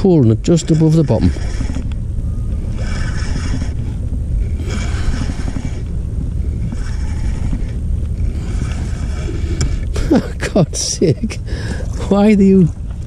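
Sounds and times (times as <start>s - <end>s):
low rumble on microphone: 0.0s - 13.0s
spinning reel winding: 0.8s - 2.0s, 2.6s - 4.0s, 4.6s - 5.9s, 6.6s - 9.8s.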